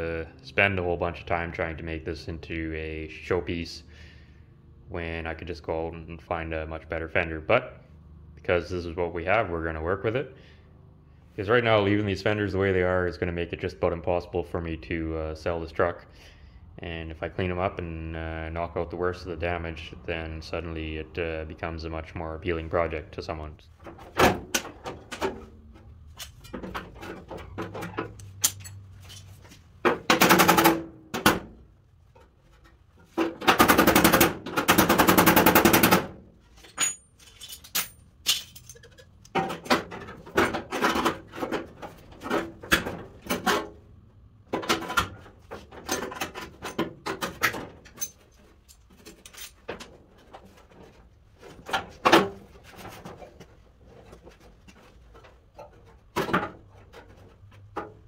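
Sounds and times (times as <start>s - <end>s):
metal knocks and clatter: 23.8s - 43.8s, 44.4s - 58.0s
rapid hammering on sheet steel: 30.0s - 31.5s, 33.4s - 36.2s.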